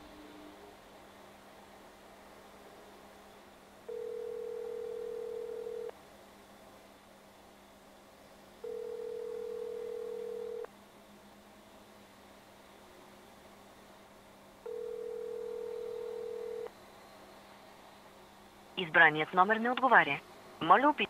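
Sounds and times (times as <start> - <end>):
telephone ringback tone: 3.9 - 5.9, 8.6 - 10.7, 14.7 - 16.7.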